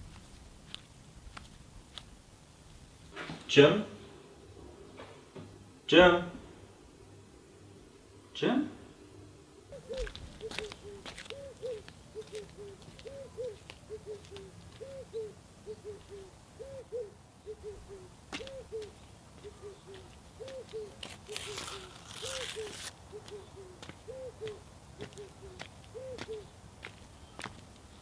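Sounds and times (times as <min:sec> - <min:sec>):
dove cooing: 0:09.5 - 0:26.6
footsteps ticking: 0:10.0 - 0:14.9
rustling hiss: 0:20.1 - 0:23.0.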